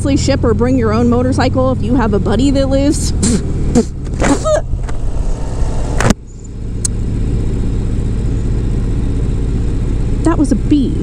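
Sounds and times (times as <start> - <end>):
motorcycle engine running: 0.0 - 11.0
breathy bursts: 3.1 - 5.8.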